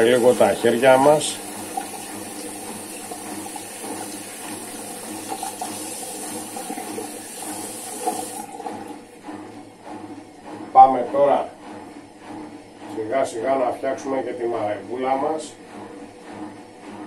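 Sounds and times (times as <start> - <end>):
water running from tap: 0.0 - 9.1
hands rinsing under water: 1.4 - 9.0.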